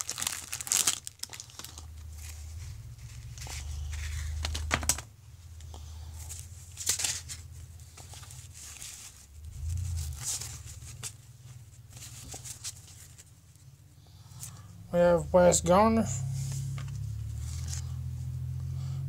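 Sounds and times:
wax paper wrapper crinkling: 0.0 - 5.0, 6.3 - 13.8
low hum: 1.6 - 19.0.

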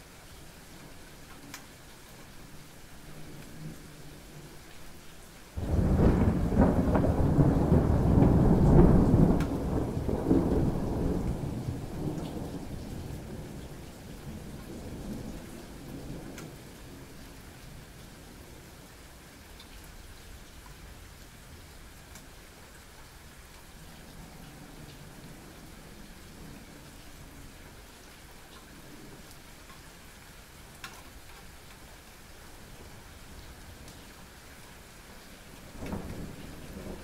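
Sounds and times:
light rain dripping: 0.0 - 37.0
thunder crack and rumble: 5.6 - 17.0, 35.6 - 37.0.

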